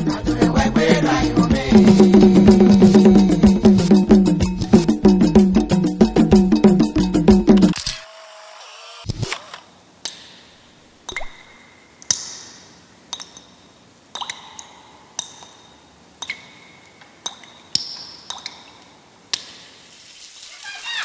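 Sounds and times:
water drops dripping with ping: 0:11.0 - 0:19.7.

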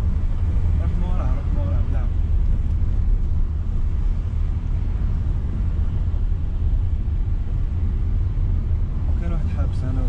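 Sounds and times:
car engine rumble: 0:00.0 - 0:10.0
tyres on road: 0:00.0 - 0:10.0.

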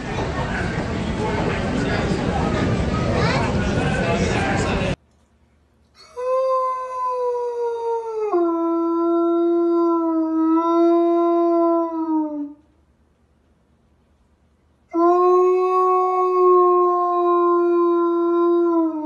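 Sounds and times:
large dog howling: 0:15.0 - 0:19.0.

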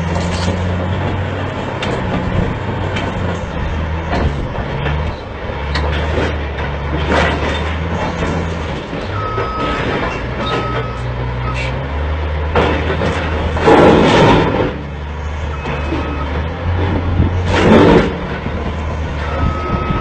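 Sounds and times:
metal clanks and knocks: 0:00.0 - 0:11.0, 0:12.5 - 0:14.8
bulldozer diesel engine: 0:00.0 - 0:20.0.

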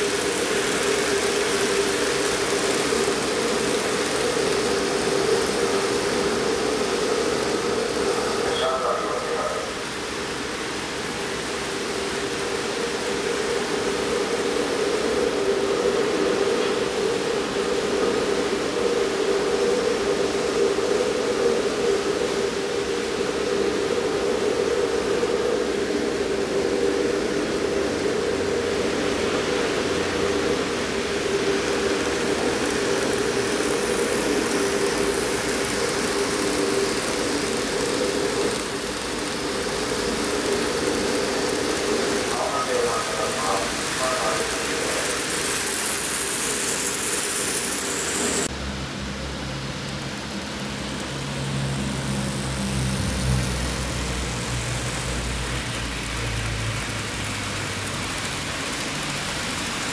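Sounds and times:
wheels rolling over track: 0:00.0 - 0:08.9, 0:22.8 - 0:48.5, 0:53.1 - 0:59.9
model train motors whirring: 0:00.0 - 0:48.5, 0:49.9 - 0:59.9.

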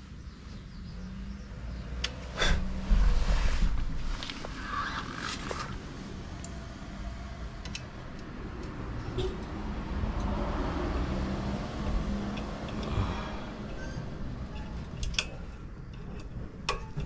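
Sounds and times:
steady low rumble: 0:02.4 - 0:08.5
light metallic clicks: 0:07.6 - 0:08.8, 0:12.2 - 0:13.0.

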